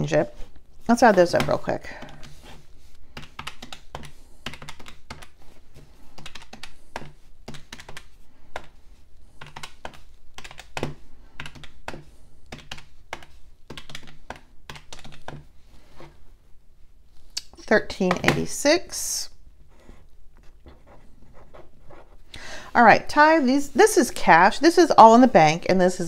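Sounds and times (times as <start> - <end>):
calculator buttons clicking: 3.2 - 5.4, 6.2 - 8.8, 9.4 - 15.5.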